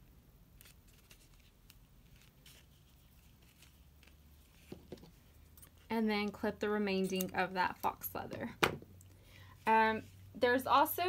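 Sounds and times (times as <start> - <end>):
fingers handling hair bow: 0.5 - 8.0.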